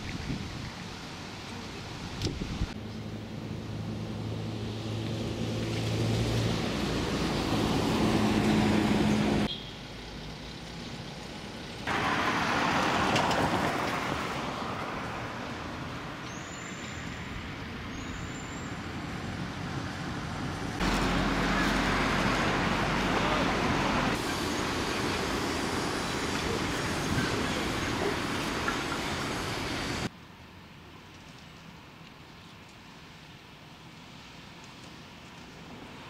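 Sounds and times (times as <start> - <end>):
vehicle engine hum: 0.3 - 30.1
passing cars rushing: 3.0 - 10.4, 11.3 - 30.1.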